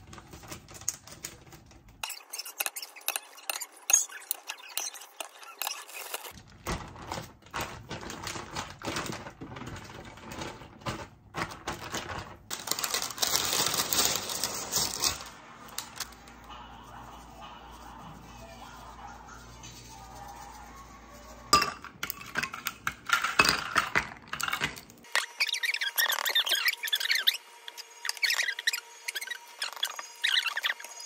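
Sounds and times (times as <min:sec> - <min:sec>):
plastic bags crinkling: 0:04.6 - 0:16.3.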